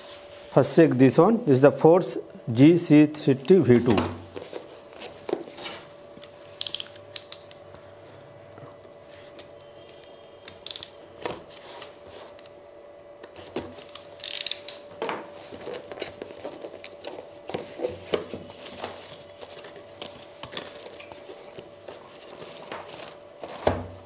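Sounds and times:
faint steady hum: 0.0s - 24.0s
packaging rustling: 15.4s - 24.0s.

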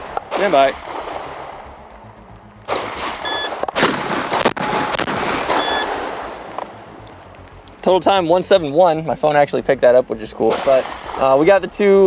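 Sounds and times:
shotgun shots ringing out: 0.0s - 1.4s, 2.7s - 6.3s, 10.5s - 11.4s.

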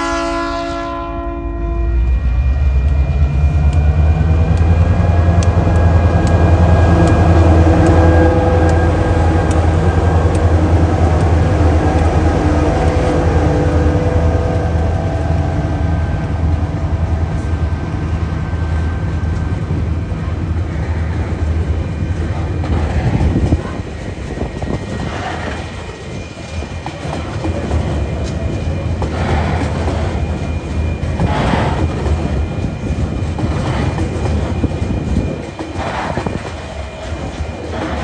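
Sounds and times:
diesel locomotive engine drone: 0.0s - 38.0s
steady whine: 1.1s - 38.0s.

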